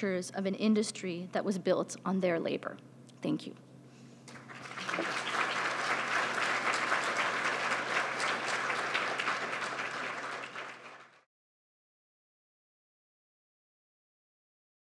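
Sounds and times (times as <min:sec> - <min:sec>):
audience applauding: 0:04.3 - 0:11.3.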